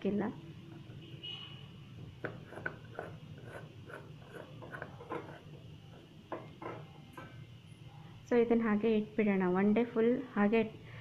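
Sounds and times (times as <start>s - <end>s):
jar lid threads scraping: 2.2s - 6.0s.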